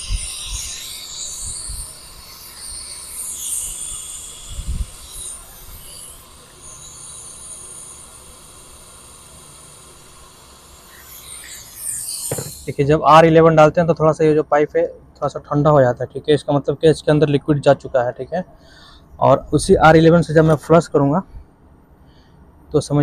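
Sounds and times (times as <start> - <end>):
solvent hissing through hose: 0.0 - 13.1
dull thump: 12.3 - 12.6.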